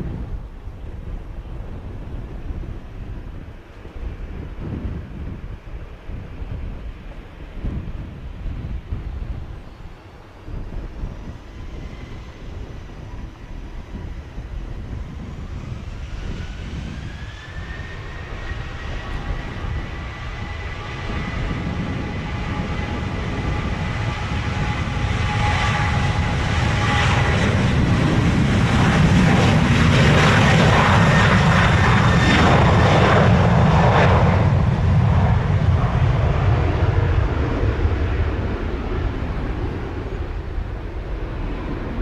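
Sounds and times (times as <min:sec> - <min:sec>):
jet engine roar: 0:00.0 - 0:42.0
jet engine whine: 0:00.0 - 0:42.0.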